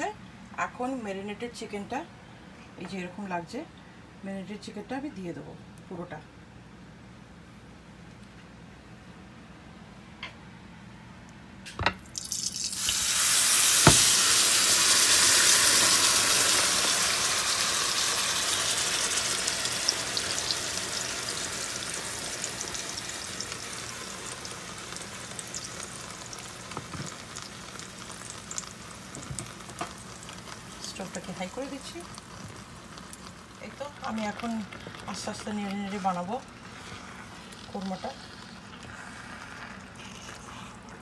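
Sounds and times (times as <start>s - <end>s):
chicken sizzling in frying pan: 12.2s - 39.7s.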